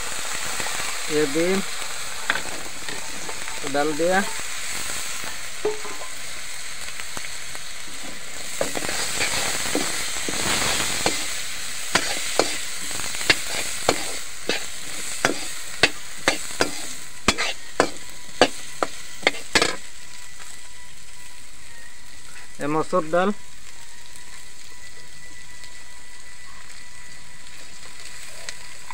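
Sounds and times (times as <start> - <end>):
vegetables sizzling in hot oil: 0.0 - 28.9
metal spoon scraping a pan: 8.0 - 19.8.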